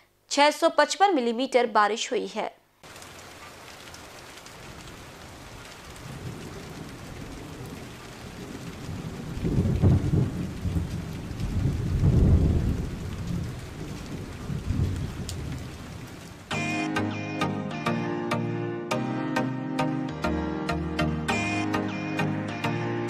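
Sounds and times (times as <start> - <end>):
steady rain: 2.8 - 16.7
thunder rumbling: 4.6 - 16.4.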